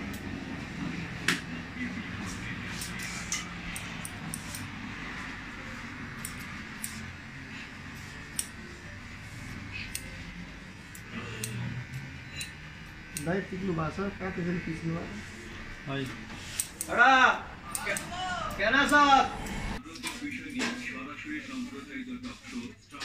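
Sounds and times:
scissors snipping hair: 2.5 - 4.8, 6.2 - 7.1, 7.9 - 8.6, 9.8 - 10.3, 10.9 - 13.4, 16.0 - 17.0, 17.6 - 18.1.

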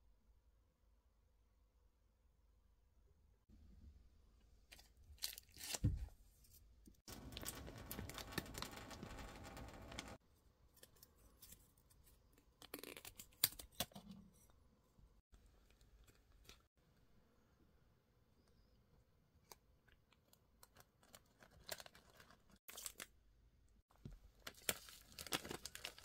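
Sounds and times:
foil bag crinkling: 7.1 - 10.2, 20.7 - 23.0, 24.4 - 26.0
sachet tearing open: 7.1 - 10.2, 20.6 - 23.1, 24.4 - 26.0.

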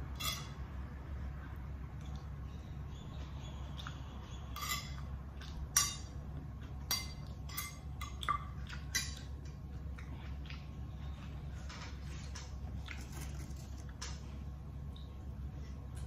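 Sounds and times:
steady low hum: 0.0 - 16.0
spoon clinking on a plate: 0.1 - 0.6, 4.5 - 5.1.

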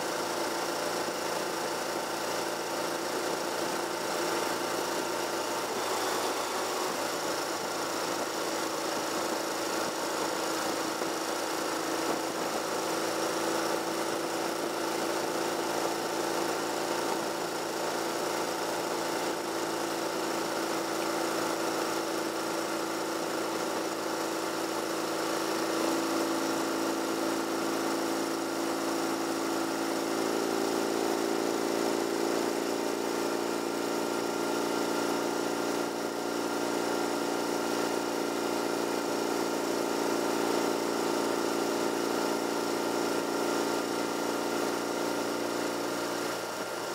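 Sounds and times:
car engine and tyre noise: 0.0 - 19.8.

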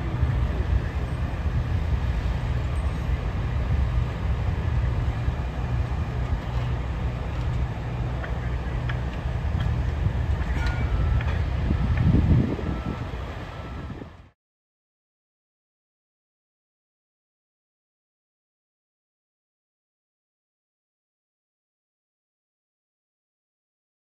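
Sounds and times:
diesel engine running: 0.0 - 14.4.

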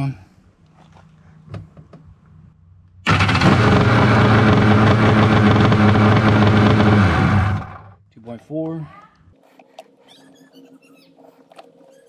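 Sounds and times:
jet ski engine running: 3.1 - 7.9.

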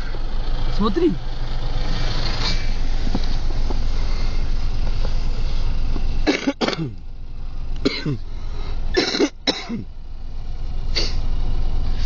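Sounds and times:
car engine and road rumble: 0.0 - 12.0
sharp cough-like bursts: 6.2 - 7.0, 7.8 - 8.2, 8.9 - 9.9.

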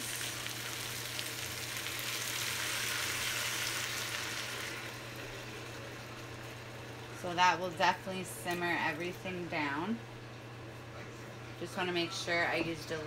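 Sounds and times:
liquid sizzling in a hot pan: 0.0 - 6.7
broth pouring into a pot: 0.0 - 7.2.

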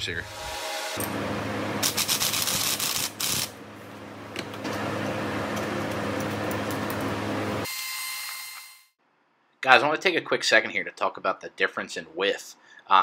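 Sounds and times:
steady mechanical hum: 0.1 - 7.7.

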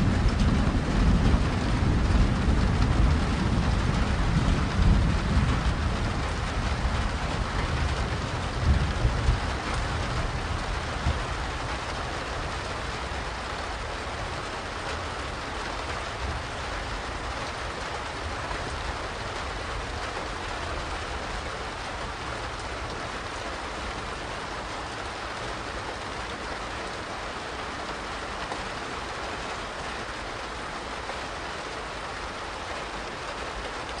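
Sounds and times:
thunder rumble: 0.0 - 27.0
steady rain falling: 0.0 - 34.0.

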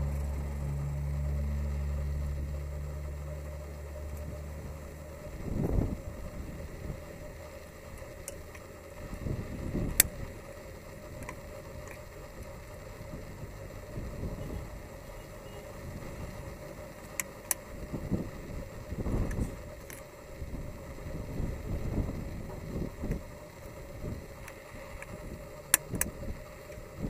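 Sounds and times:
low rumble: 0.0 - 17.0.

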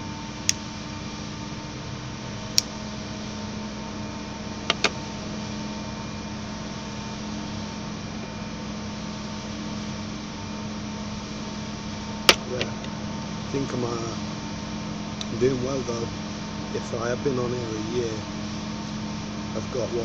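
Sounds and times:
distant machinery drone: 0.0 - 20.0
sharp clicks: 4.7 - 5.0.

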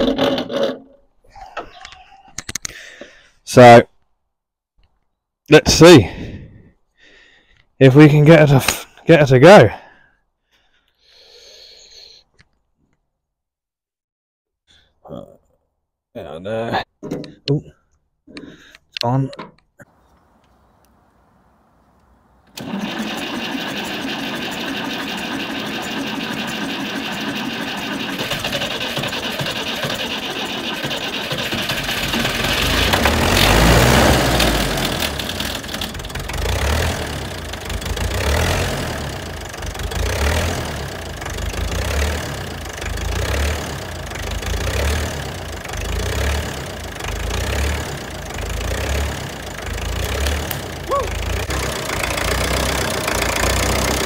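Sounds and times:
diesel engine cranking and starting: 0.0 - 1.6, 22.5 - 54.0
diesel engine running unevenly: 22.6 - 54.0.

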